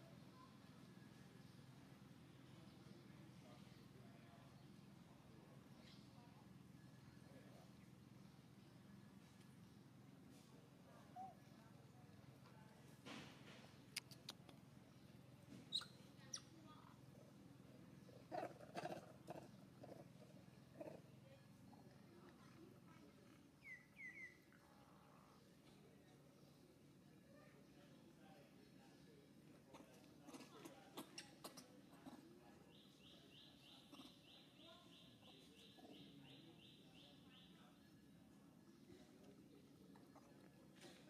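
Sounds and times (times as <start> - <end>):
faint animal squeaks and chirps: 15.6 - 16.9, 23.3 - 24.6, 29.7 - 37.7
faint high chirp: 15.7 - 16.6, 23.6 - 24.6.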